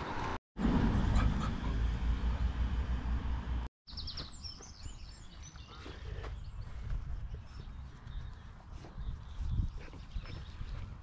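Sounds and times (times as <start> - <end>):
birds chirping and twittering: 3.9 - 11.0
wind rumbling on microphone: 6.1 - 11.0.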